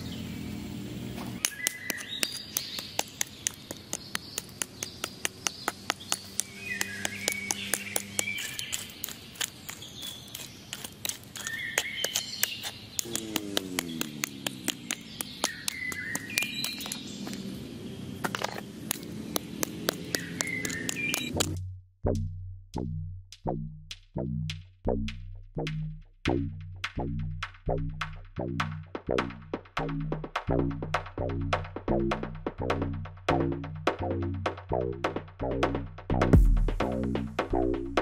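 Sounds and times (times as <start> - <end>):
birds chirping: 0.0 - 21.6
hand hoe chopping stony soil: 1.4 - 17.5, 18.2 - 21.6.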